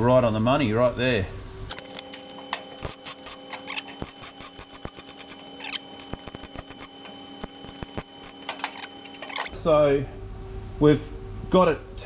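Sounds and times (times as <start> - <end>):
welding arc crackling: 1.7 - 9.6.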